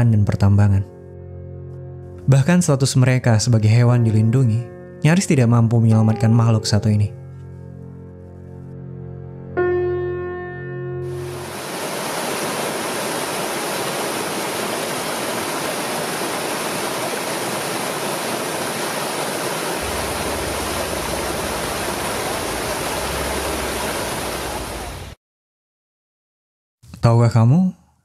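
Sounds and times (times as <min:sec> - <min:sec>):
flowing water rushing: 0:11.1 - 0:25.2
low rumble: 0:19.8 - 0:25.1.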